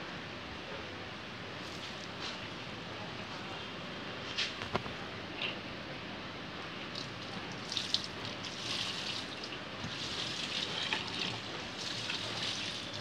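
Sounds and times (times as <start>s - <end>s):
liquid pouring and splashing: 7.0s - 13.0s.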